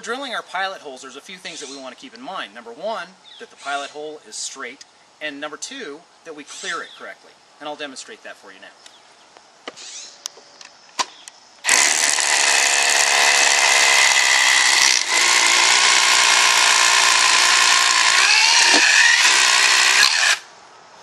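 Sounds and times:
cordless drill drilling concrete: 11.6 - 20.5.

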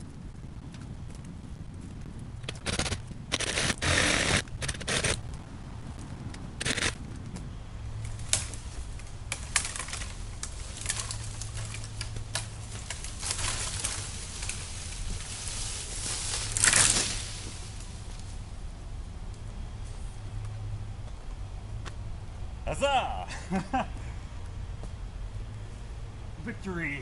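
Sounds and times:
reciprocating saw cutting wood: 2.6 - 5.2, 6.6 - 7.0.

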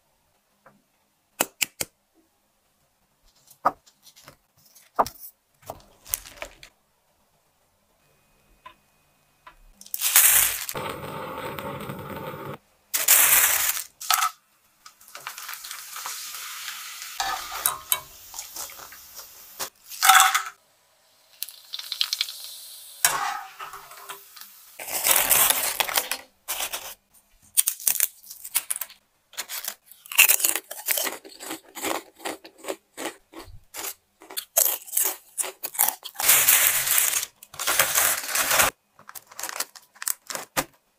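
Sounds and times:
fried crackers crackling: 5.7 - 6.7, 9.8 - 11.0, 13.0 - 17.3, 18.3 - 20.2, 21.3 - 23.4, 24.4 - 40.7
chips rattling into plastic bag: 6.0 - 6.7, 9.8 - 10.8, 13.0 - 14.4, 24.8 - 27.0, 34.6 - 40.7
hot oil sizzling: 9.9 - 14.3, 15.0 - 25.3.

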